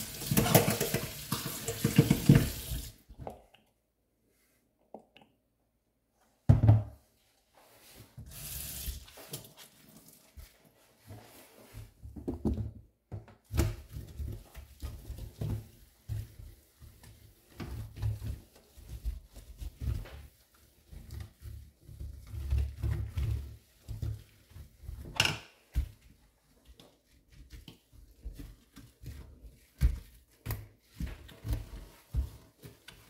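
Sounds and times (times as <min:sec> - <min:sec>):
cloth wiping steel sink: 0:07.1 - 0:12.0, 0:13.5 - 0:33.0.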